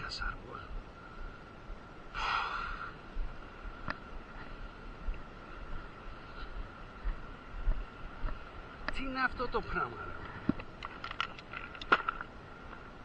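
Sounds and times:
man breathing out forcefully: 0:02.1 - 0:03.0.

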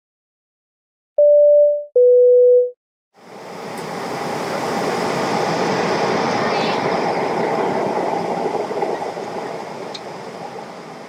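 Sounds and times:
airplane cabin drone in flight: 0:03.2 - 0:11.0.

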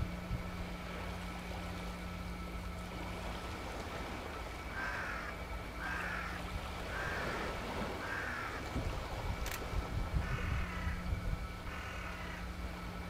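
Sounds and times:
steady low rumble: 0:00.0 - 0:13.0
bird calling: 0:04.7 - 0:08.8, 0:10.2 - 0:12.5.

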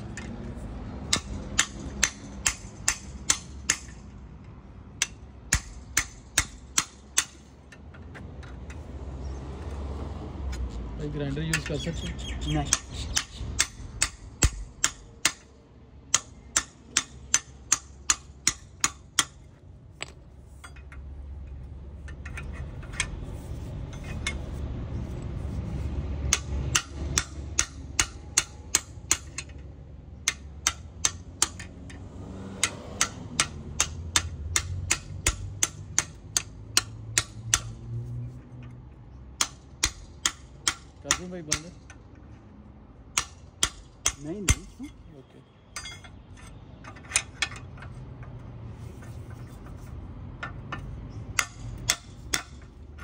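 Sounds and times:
hammer striking metal chisel: 0:01.1 - 0:04.0, 0:05.0 - 0:07.8, 0:12.6 - 0:15.5, 0:16.1 - 0:19.4, 0:26.3 - 0:29.6, 0:30.2 - 0:32.0, 0:32.6 - 0:37.8, 0:39.4 - 0:42.0, 0:43.1 - 0:44.9, 0:45.7 - 0:47.9, 0:50.4 - 0:53.0.

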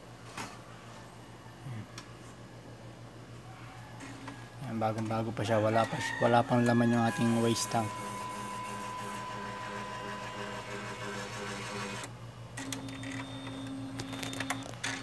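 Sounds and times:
inkjet printer running: 0:04.0 - 0:15.0.

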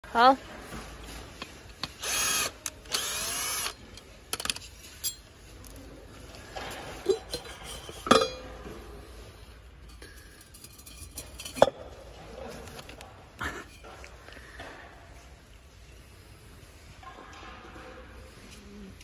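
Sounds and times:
screws and metal parts clinking: 0:01.4 - 0:05.8, 0:09.8 - 0:11.7
cordless drill spinning: 0:02.0 - 0:03.8.

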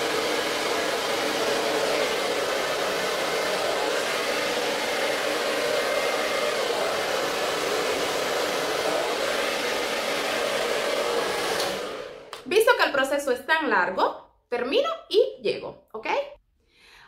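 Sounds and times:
hair dryer blowing: 0:00.0 - 0:12.8.

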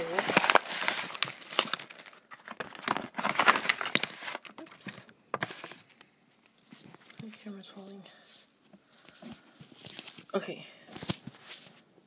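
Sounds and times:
packaging crinkling: 0:00.0 - 0:07.4.

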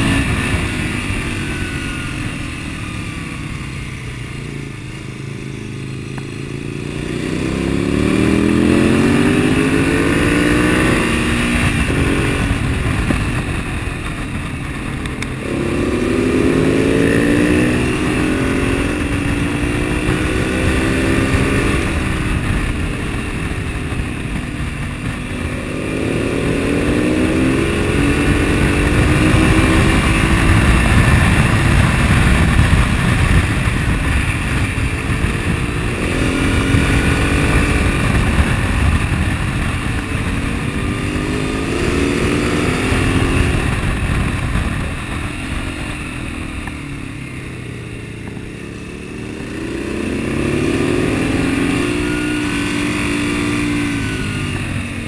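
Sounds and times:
low wind rumble: 0:00.0 - 0:55.0
motorcycle engine revving: 0:00.0 - 0:55.0.

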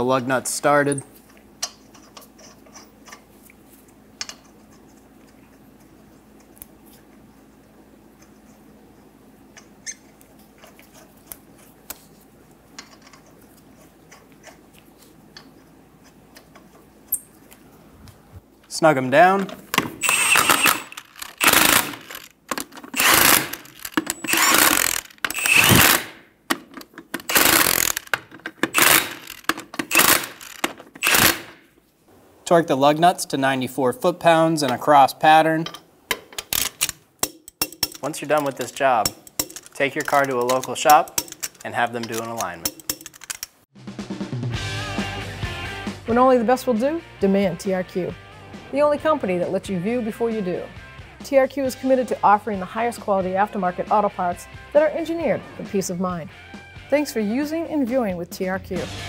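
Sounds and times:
lug nuts metallic clicks: 0:19.4 - 0:31.6, 0:35.6 - 0:43.6
impact wrench hammering: 0:19.8 - 0:31.7.

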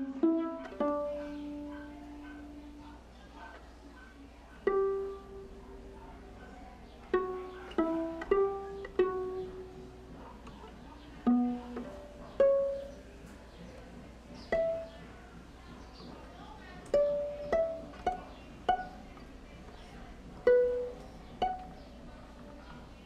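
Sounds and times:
plucked string notes: 0:00.0 - 0:02.8, 0:04.6 - 0:05.6, 0:07.1 - 0:10.1, 0:11.2 - 0:13.2, 0:14.4 - 0:15.0, 0:16.9 - 0:19.3, 0:20.4 - 0:21.8.

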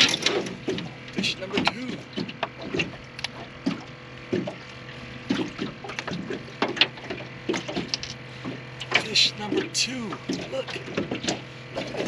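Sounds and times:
steady low hum: 0:00.0 - 0:12.0
water slapping aluminum boat: 0:00.0 - 0:12.0.

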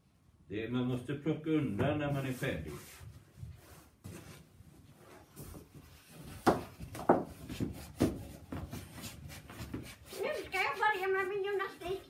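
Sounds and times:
feet thumping on hard floor: 0:05.4 - 0:10.0.

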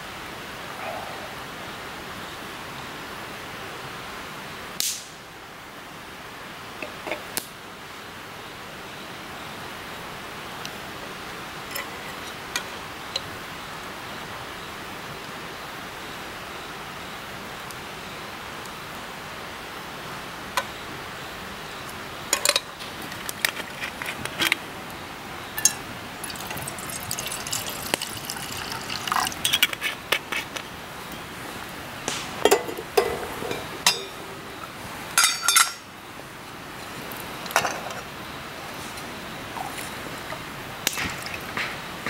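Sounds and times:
steady background hiss: 0:00.0 - 0:42.0
broth pouring into a cup: 0:26.2 - 0:29.6
metal cookware clinking: 0:32.4 - 0:34.4, 0:35.2 - 0:35.8.

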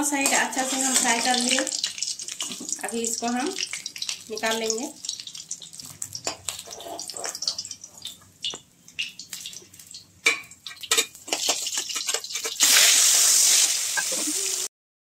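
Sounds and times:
metal spatula scraping metal pan: 0:00.2 - 0:01.7, 0:06.2 - 0:08.1, 0:10.3 - 0:14.4
loud steady hiss: 0:12.6 - 0:14.7.

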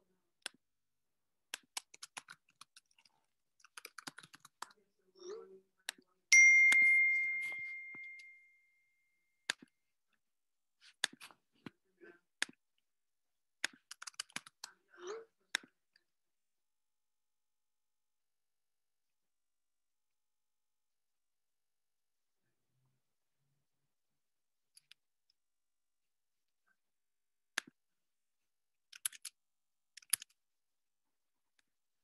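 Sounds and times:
keyboard and mouse clicks: 0:01.5 - 0:04.9, 0:09.4 - 0:09.7, 0:10.9 - 0:11.8, 0:13.6 - 0:14.8, 0:24.7 - 0:25.4, 0:27.5 - 0:27.8, 0:28.8 - 0:30.4
bright ding: 0:06.3 - 0:08.9.

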